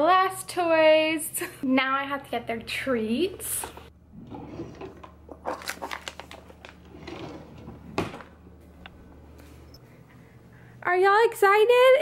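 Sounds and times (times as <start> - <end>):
low steady hum: 0.0 - 12.0
kitchen drawer opening: 4.1 - 8.4
plastic bag crinkling: 5.2 - 6.9.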